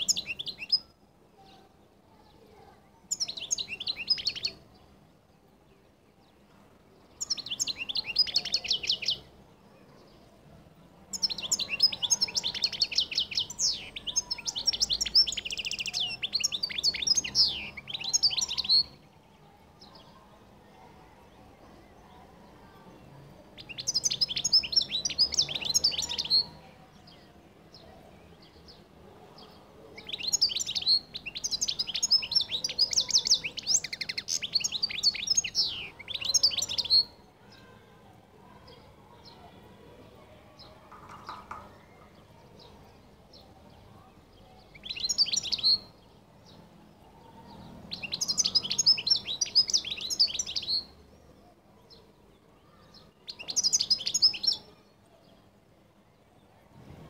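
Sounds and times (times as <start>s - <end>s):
finch twittering song: 0.0s - 1.6s, 3.1s - 4.9s, 7.1s - 9.3s, 11.1s - 19.0s, 23.6s - 27.1s, 29.4s - 37.2s, 44.4s - 46.7s, 47.5s - 51.1s, 52.6s - 55.4s.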